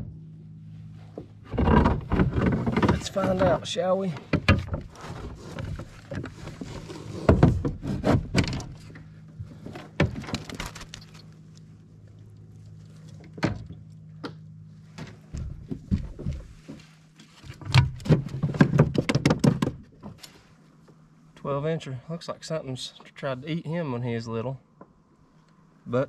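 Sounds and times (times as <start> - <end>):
steady low hum: 0.0 - 26.0
gear knocking and rattling on kayak: 1.4 - 11.1, 15.4 - 20.2.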